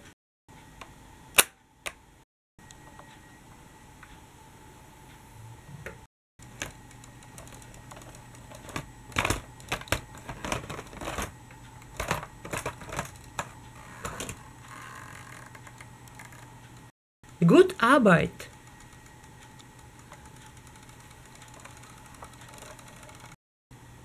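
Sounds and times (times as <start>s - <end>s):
plastic toy clicks and clatter: 20.0s - 23.4s.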